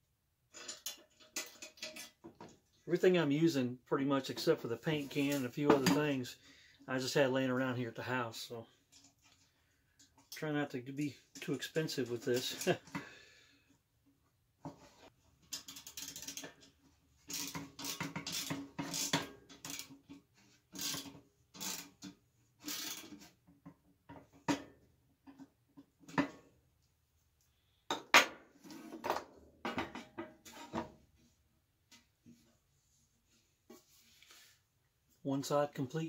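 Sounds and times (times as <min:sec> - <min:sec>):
metallic clicks and scraping: 0:00.5 - 0:02.3, 0:15.4 - 0:23.3
screwdriver tightening a bolt: 0:17.3 - 0:19.9.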